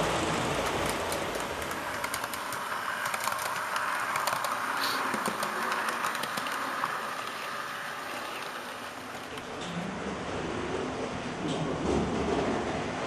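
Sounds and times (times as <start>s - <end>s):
model train whirring: 0.0s - 9.7s
rapid wheel clicks: 0.5s - 9.5s.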